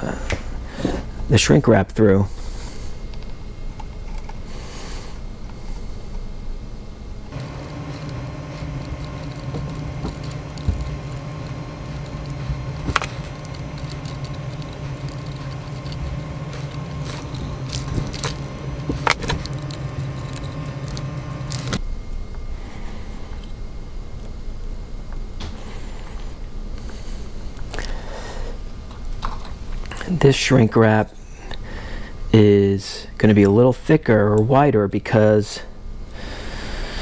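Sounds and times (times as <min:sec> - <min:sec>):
small motor humming: 0:07.2 - 0:21.8.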